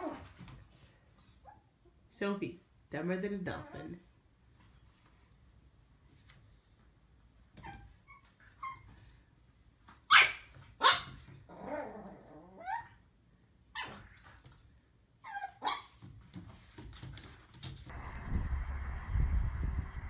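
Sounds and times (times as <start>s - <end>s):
puppy barking high-pitched: 10.1s - 11.2s, 15.3s - 16.0s.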